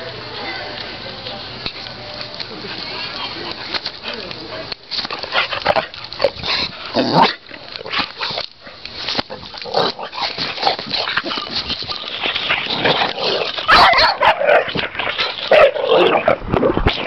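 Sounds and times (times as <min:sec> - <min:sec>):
dogs barking: 0:08.0 - 0:16.4
dogs yipping and whimpering: 0:10.6 - 0:16.1.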